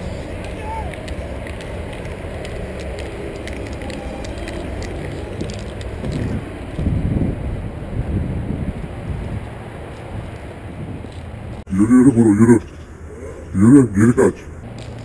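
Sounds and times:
wind rumbling on microphone: 0.0s - 11.7s.

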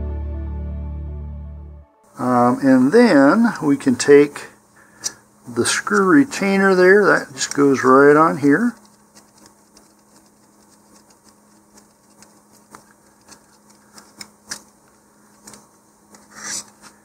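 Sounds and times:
faint steady hum: 2.0s - 17.0s
plastic parts clicking and tapping: 8.8s - 14.7s.

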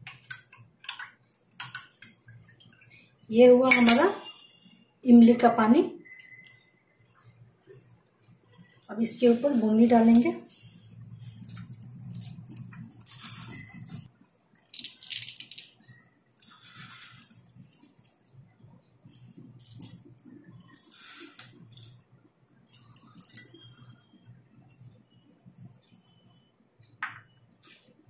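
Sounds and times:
fried snack rattling: 14.7s - 15.8s.

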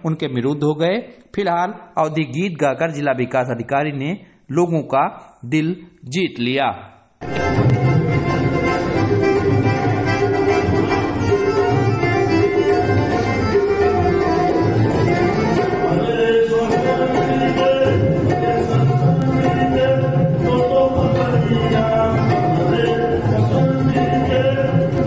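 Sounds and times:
harmonium chords: 7.2s - 25.0s
man singing into a microphone: 15.8s - 25.0s.

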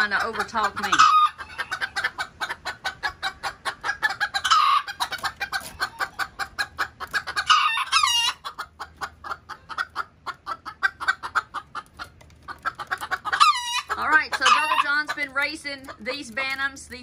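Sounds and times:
roosters clucking: 0.0s - 17.0s.

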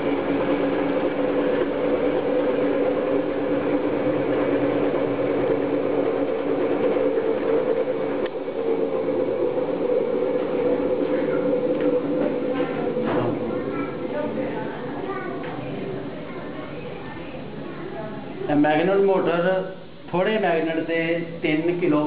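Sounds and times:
motor whirring hum: 0.0s - 17.3s.

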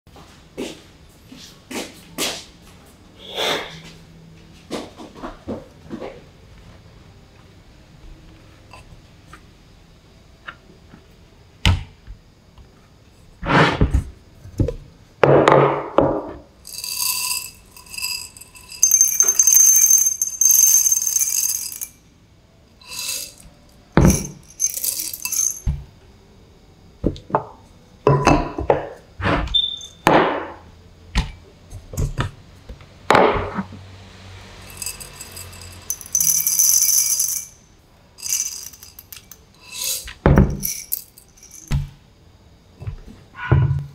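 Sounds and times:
ceramic cups clinking on wood: 16.7s - 22.0s, 22.8s - 25.8s, 34.7s - 37.6s, 38.2s - 41.8s
coffee beans pouring into cup: 16.7s - 22.0s, 22.8s - 25.7s, 34.6s - 37.6s, 38.2s - 41.7s.

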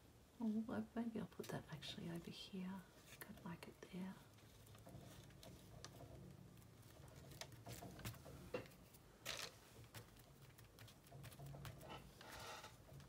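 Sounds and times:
low room hum: 0.0s - 13.0s
paper taps and rustles: 7.1s - 12.8s.

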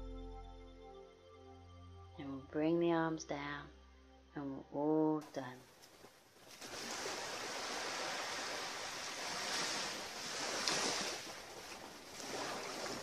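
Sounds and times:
waves lapping on rocky shore: 5.6s - 13.0s.

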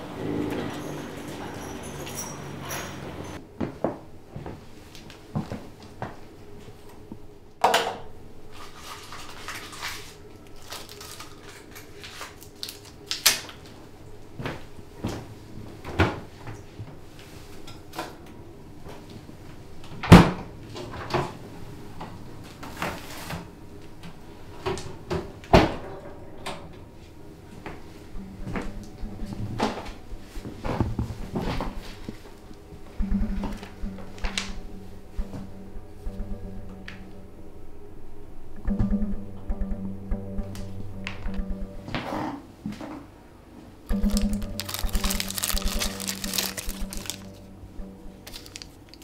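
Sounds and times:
footsteps: 0.0s - 3.4s
faint steady hum: 0.0s - 49.0s
things being handled: 43.9s - 47.4s, 48.1s - 49.0s.

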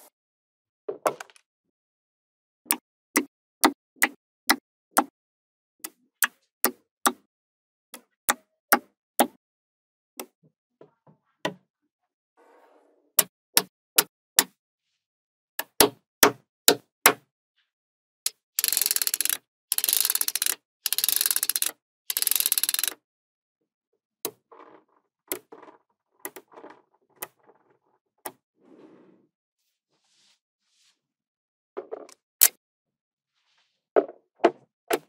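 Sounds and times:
magnetic balls clicking: 18.3s - 23.0s.

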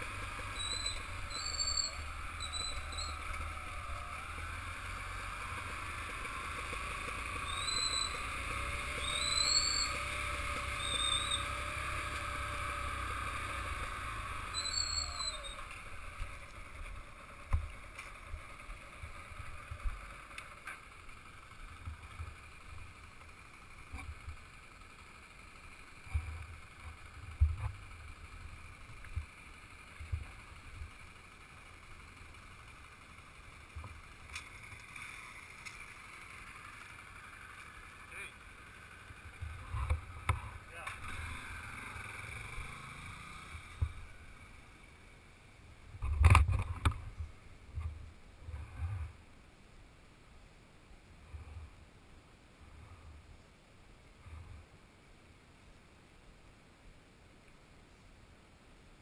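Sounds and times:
motorcycle road rumble: 0.0s - 59.0s
wind: 0.0s - 59.0s
short whistled chirps: 0.5s - 3.3s, 7.4s - 10.1s, 10.7s - 11.5s, 14.5s - 15.7s.

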